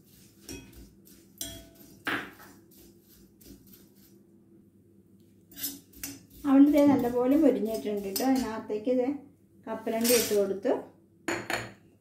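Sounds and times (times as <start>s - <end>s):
steel spoon scraping a pan: 0.0s - 4.2s, 5.5s - 8.7s, 10.0s - 10.5s.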